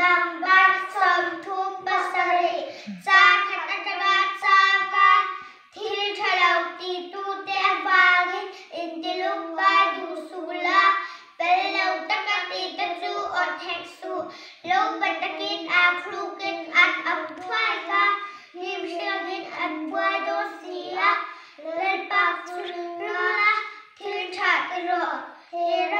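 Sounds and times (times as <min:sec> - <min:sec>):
boys singing unaccompanied: 0:00.0 - 0:25.9.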